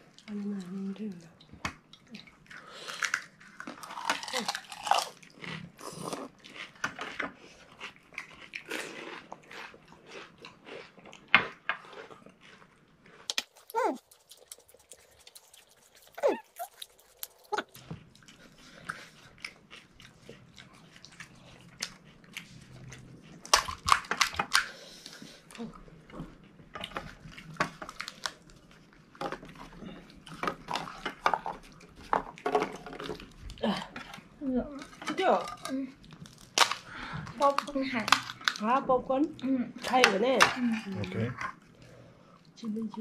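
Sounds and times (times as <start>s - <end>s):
wet chewing: 0.0s - 43.0s
crunching crisp shells: 2.5s - 17.9s, 34.8s - 38.6s.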